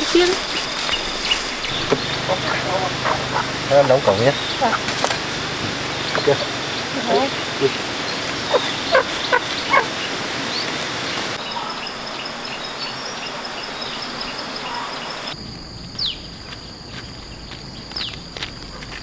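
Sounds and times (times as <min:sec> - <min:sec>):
chicken clucking: 0:01.7 - 0:04.9, 0:08.5 - 0:09.9.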